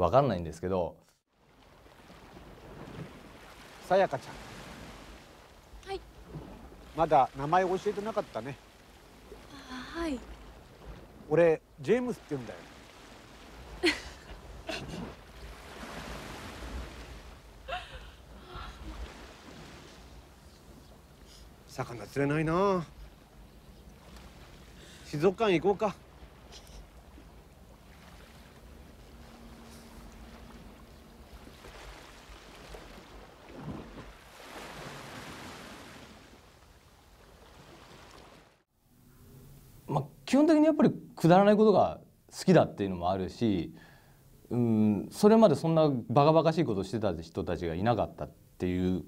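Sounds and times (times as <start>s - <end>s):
sea washing on rocky shore: 1.5s - 20.5s, 24.0s - 38.6s.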